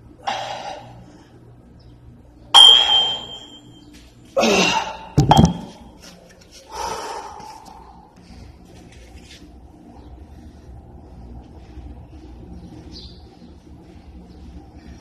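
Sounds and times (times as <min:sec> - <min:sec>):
dumbbells clinking: 0:02.6 - 0:03.7
dumbbells thudding on floor: 0:05.2 - 0:05.8.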